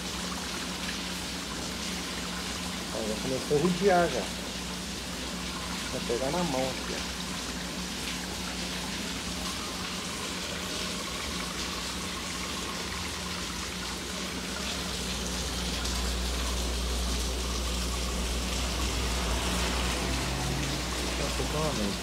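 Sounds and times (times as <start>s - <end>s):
pond pump humming: 0.0s - 22.0s
heavy rain hissing: 14.1s - 22.0s.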